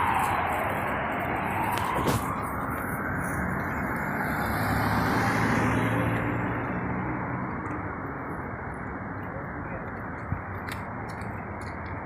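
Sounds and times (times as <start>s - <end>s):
street traffic noise: 0.0s - 12.0s
vehicle engine passing: 3.0s - 7.5s.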